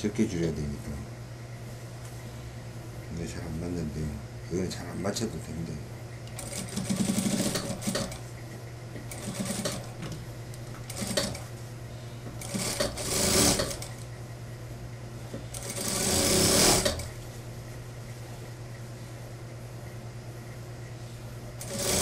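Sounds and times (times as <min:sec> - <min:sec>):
steady motor hum: 0:00.0 - 0:22.0
sewing machine stitching: 0:06.4 - 0:08.2, 0:10.9 - 0:11.4, 0:12.4 - 0:14.0, 0:15.5 - 0:17.1, 0:21.6 - 0:22.0.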